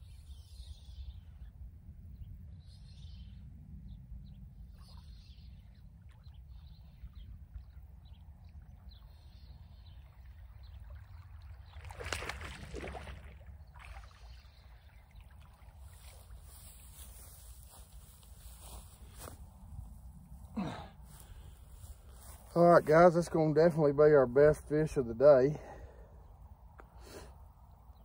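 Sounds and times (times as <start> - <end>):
fish splashing in water: 10.9 - 16.4.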